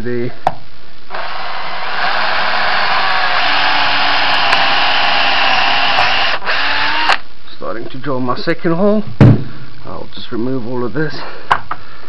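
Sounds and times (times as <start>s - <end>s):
drill bit grinding: 1.1s - 7.2s
drill motor whine: 1.1s - 7.2s.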